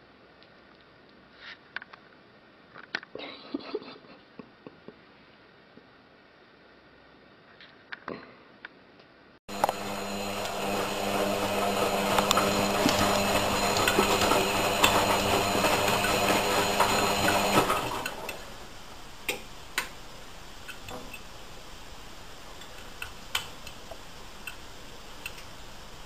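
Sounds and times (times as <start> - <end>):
machine humming: 9.5 - 21.1.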